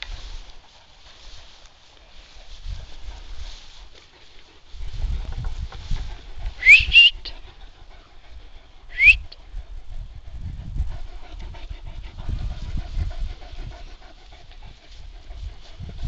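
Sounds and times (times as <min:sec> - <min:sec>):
person whistling: 0:06.6 - 0:07.3, 0:08.9 - 0:09.3.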